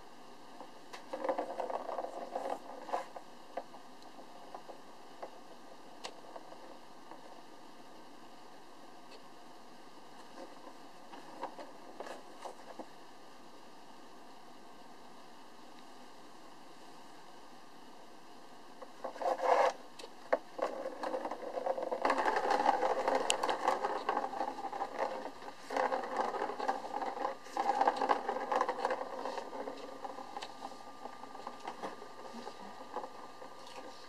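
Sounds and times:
plastic ball rolling on track: 0.0s - 7.7s, 10.2s - 13.0s, 18.8s - 34.0s.

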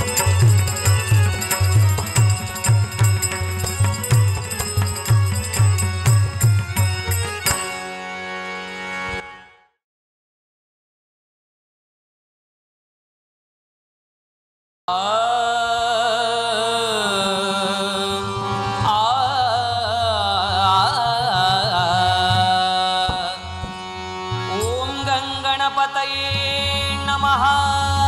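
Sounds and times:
instrumental accompaniment: 0.0s - 9.7s, 21.8s - 27.2s
man singing a devotional hymn: 14.9s - 23.6s, 24.5s - 28.0s.

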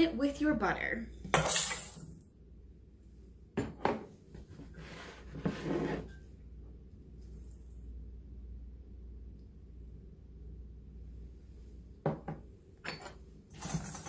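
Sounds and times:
objects set down on countertop: 3.6s - 4.1s, 12.0s - 14.0s.

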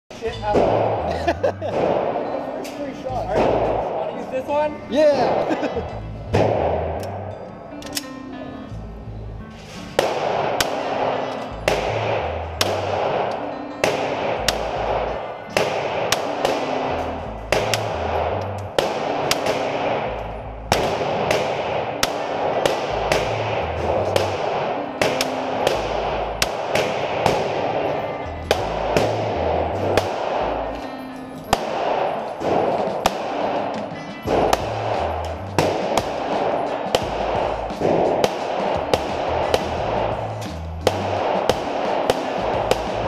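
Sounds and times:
pistol shots echoing indoors: 0.5s - 1.1s, 1.7s - 4.0s, 6.3s - 8.2s, 9.6s - 43.0s
background music with bass line: 11.5s - 15.2s, 15.8s - 24.8s, 28.2s - 30.8s, 31.5s - 43.0s.

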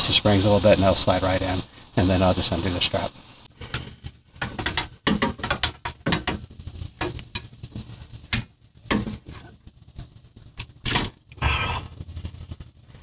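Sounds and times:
metallic clicks knocks and scrapes: 3.6s - 9.5s.

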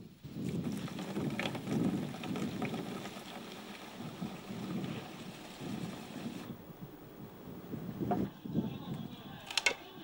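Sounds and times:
water gushing into plastic canister: 0.5s - 6.5s.

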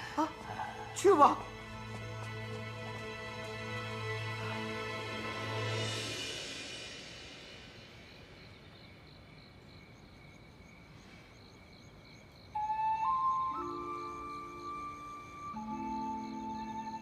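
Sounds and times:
background music: 0.0s - 8.2s, 12.6s - 17.0s
crickets chirping: 0.0s - 17.0s
soft music with bell-like tones: 12.6s - 17.0s.

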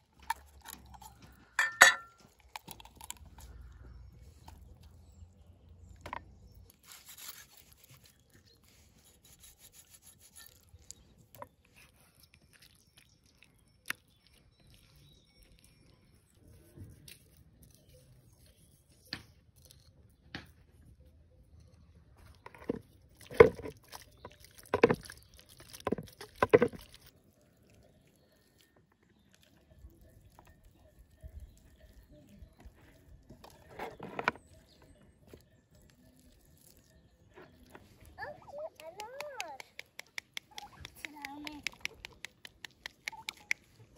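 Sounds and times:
utensils tapping metal colander: 1.6s - 2.2s
hands handling raw chicken: 22.2s - 43.9s.

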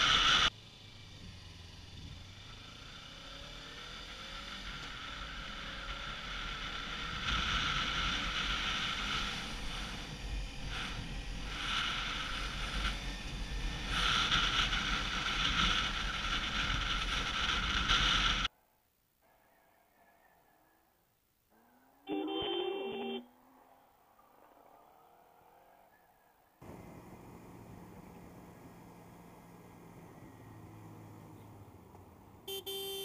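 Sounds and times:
wind rushing over camera: 6.3s - 18.5s
motorcycle engine running: 26.6s - 33.0s.

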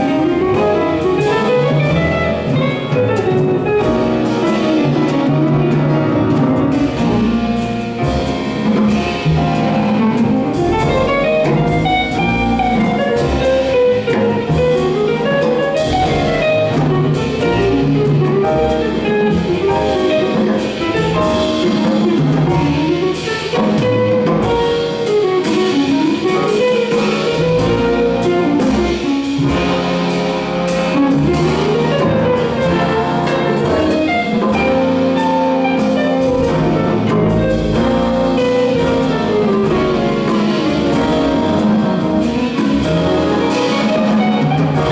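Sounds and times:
jazz big band playing: 0.0s - 44.9s
tenor saxophone solo: 10.5s - 21.5s, 31.3s - 44.9s.

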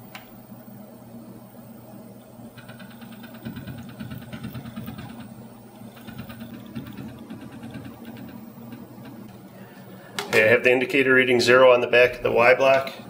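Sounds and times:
stepper motor hum: 2.4s - 9.5s
rapid even ticking: 2.5s - 9.5s.

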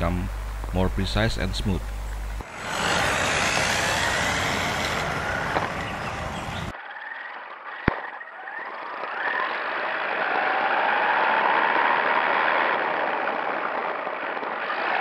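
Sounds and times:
tyre noise on asphalt: 1.7s - 15.0s
electric motor whining: 2.1s - 6.7s.

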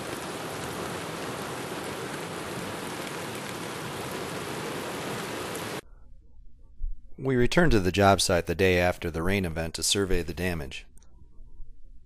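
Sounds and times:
heavy rain hiss: 0.0s - 5.8s.

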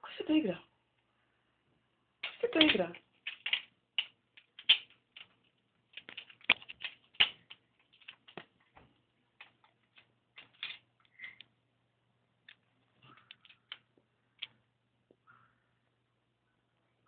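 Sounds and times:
bird pecking plastic pieces: 2.2s - 11.4s.

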